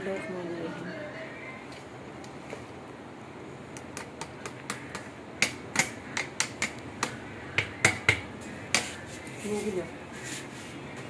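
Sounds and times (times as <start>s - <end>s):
utensils tapping on metal pot: 4.0s - 8.9s.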